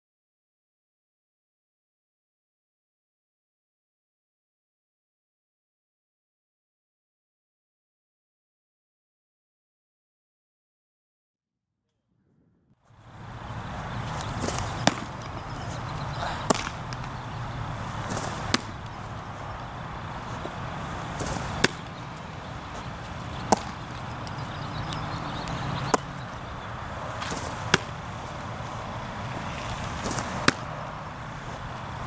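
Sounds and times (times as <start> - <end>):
steady low hum: 12.2 - 32.0
baseballs popping into a mitt: 14.1 - 19.2, 20.2 - 22.2, 22.8 - 26.4, 27.2 - 28.5, 29.7 - 30.8.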